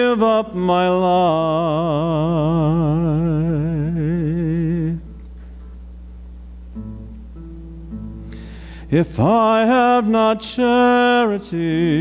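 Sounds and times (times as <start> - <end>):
classical guitar plucking: 6.7 - 10.8.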